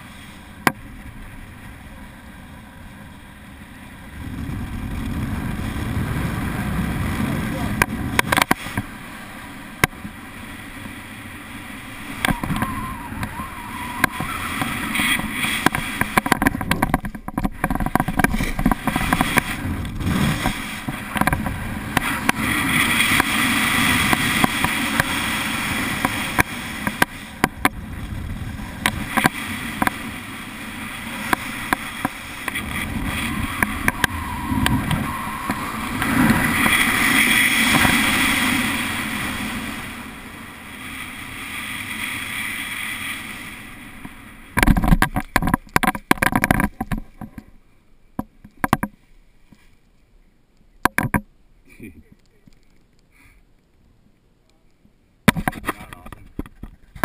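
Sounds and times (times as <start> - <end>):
wind rushing over microphone: 0.9 - 9.4, 10.1 - 45.5.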